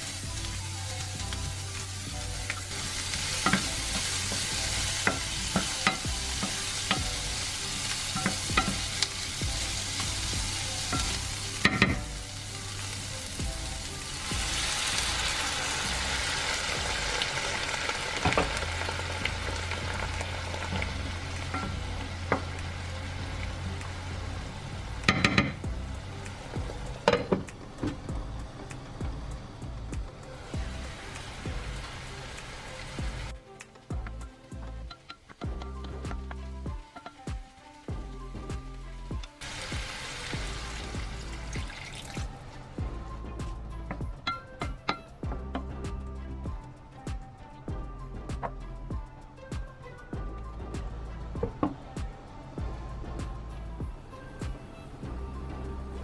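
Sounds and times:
vegetables sizzling in oil: 0.0s - 43.0s
water poured into hot pan: 39.4s - 42.4s.

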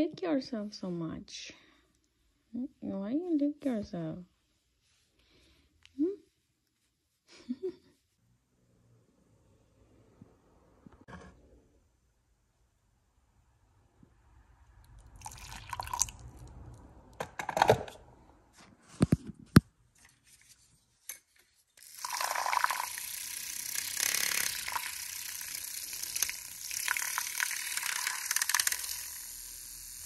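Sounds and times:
hot water pouring into a mug: 15.1s - 16.3s, 21.8s - 29.4s
milk frother whirring: 21.8s - 30.0s.

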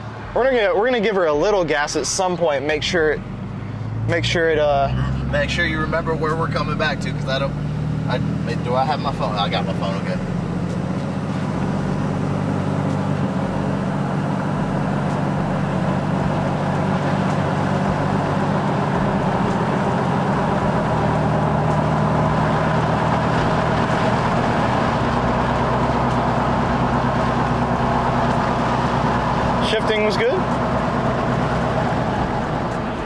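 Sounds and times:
diesel engine running: 0.0s - 33.0s
road noise: 0.0s - 33.0s.

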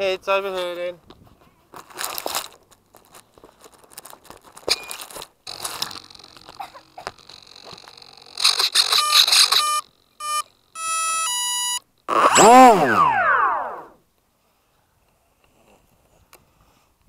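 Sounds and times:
grass scraping against camera: 0.5s - 9.6s
short electronic beeps: 8.8s - 13.5s.

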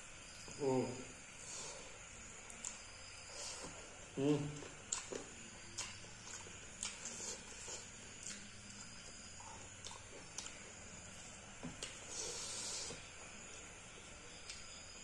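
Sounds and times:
chewing and wet mouth sounds: 2.3s - 2.9s, 4.5s - 12.2s.

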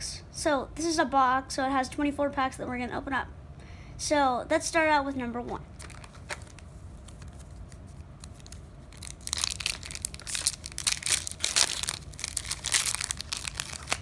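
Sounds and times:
foil wrapper crinkling and tearing: 5.8s - 14.0s.

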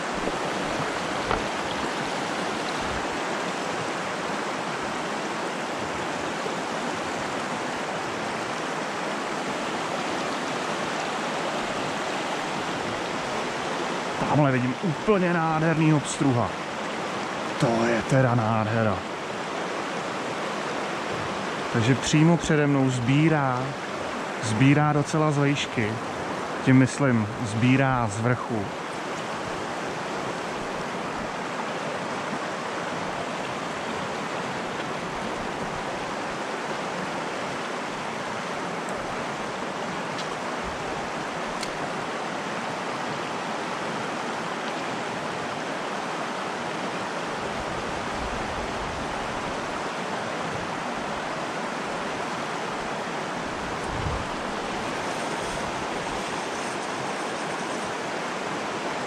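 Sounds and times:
river water rushing: 0.0s - 59.0s.

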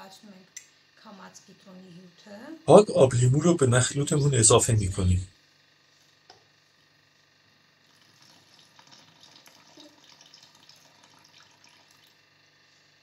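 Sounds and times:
liquid trickling into a bottle: 7.8s - 12.3s.

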